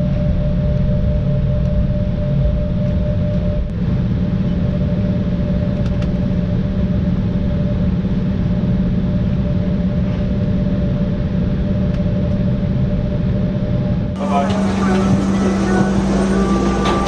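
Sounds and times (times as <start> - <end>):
cabin air noise: 0.0 - 17.0
jet engines idling hum: 0.0 - 17.0
held engine tones: 12.8 - 17.0.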